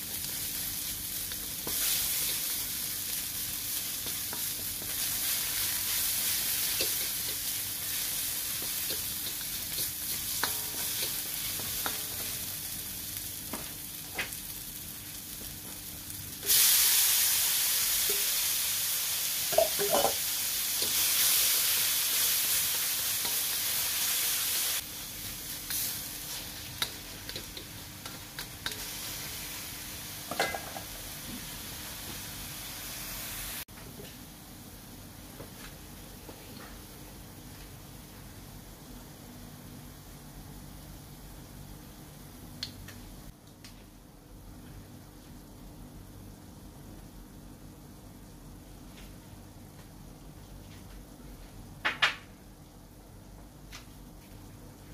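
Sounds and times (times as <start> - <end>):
oil sizzling in a wok: 0.0 - 33.7.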